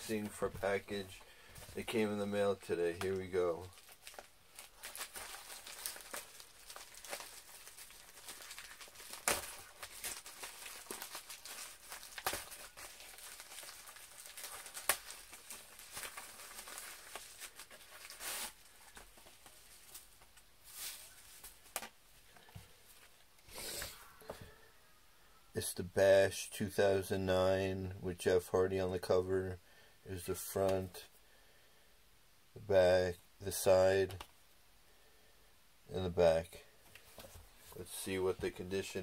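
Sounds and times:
envelope rustling and crackling: 3.0s - 22.0s
envelope tearing: 3.8s - 19.1s.

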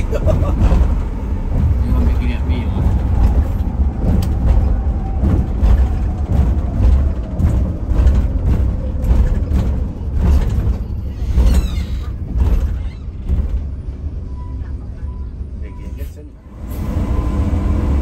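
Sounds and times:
body knocks and rattles: 0.0s - 14.1s
bus engine rumble: 0.0s - 18.0s.

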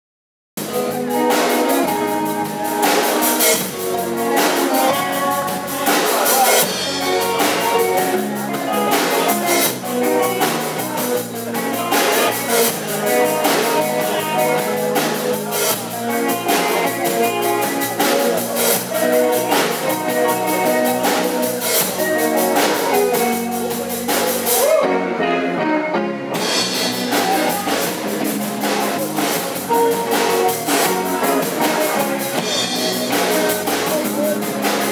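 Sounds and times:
drum kit with cymbals: 0.6s - 24.8s, 26.3s - 34.9s
bass guitar: 0.6s - 34.9s
electric guitars: 0.6s - 34.9s.

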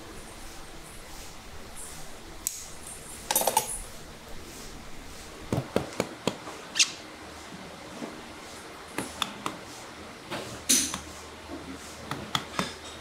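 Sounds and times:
small metallic clinking: 3.3s - 3.8s.

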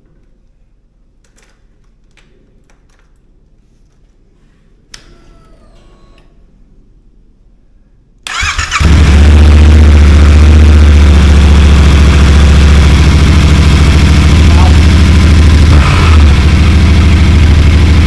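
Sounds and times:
starter click and whine: 8.2s - 9.6s
motorcycle engine idling: 8.3s - 18.0s.

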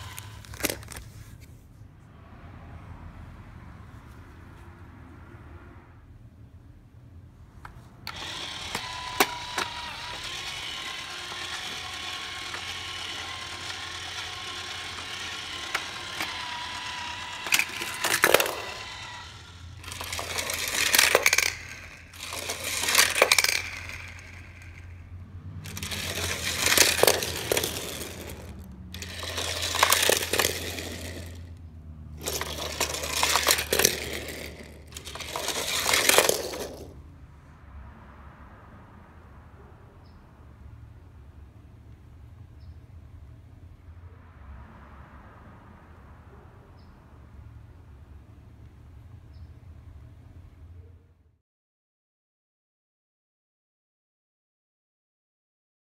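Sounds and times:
toy trains rattling on plastic track: 0.0s - 1.2s, 8.0s - 37.0s.

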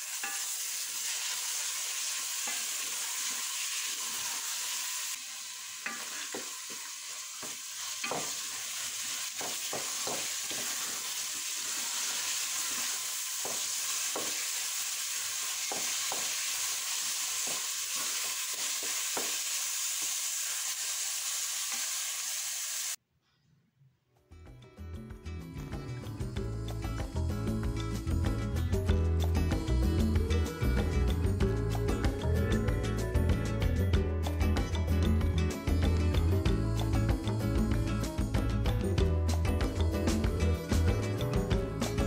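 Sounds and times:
food sizzling in a metal pot: 0.0s - 23.0s, 26.6s - 42.0s
wooden spatula stirring and scraping: 9.4s - 12.9s.

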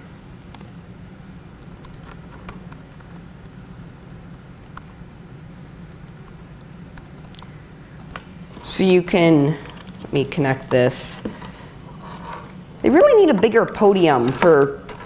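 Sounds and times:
low room hum: 0.0s - 15.0s
laptop keyboard typing: 0.5s - 1.0s, 1.6s - 8.3s.

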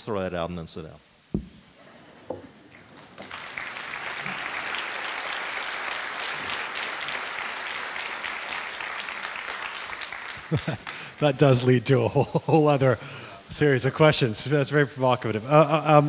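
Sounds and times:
audience applauding: 2.7s - 11.9s.

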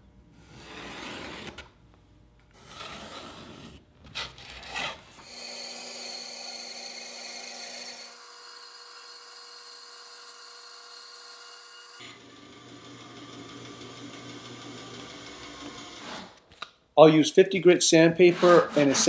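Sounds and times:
band saw cutting wood: 4.7s - 16.3s, 18.2s - 19.0s
pencil scratching on wood: 18.2s - 19.0s.

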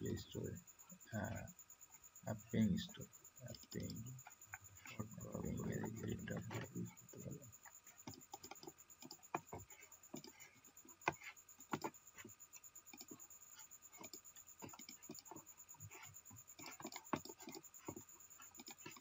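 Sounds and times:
keyboard and mouse clicks: 8.0s - 12.3s, 12.9s - 13.2s, 13.9s - 16.0s, 16.6s - 19.0s.

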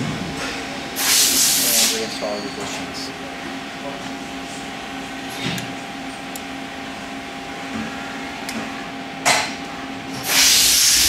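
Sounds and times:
steady background hum: 0.0s - 11.0s
loud hiss: 1.0s - 2.0s, 10.2s - 11.0s.

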